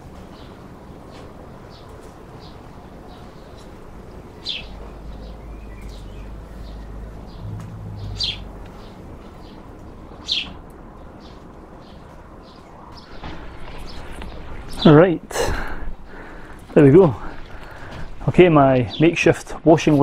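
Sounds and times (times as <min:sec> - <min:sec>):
birds chirping: 0:00.0 - 0:20.0
low rumble: 0:04.7 - 0:10.2.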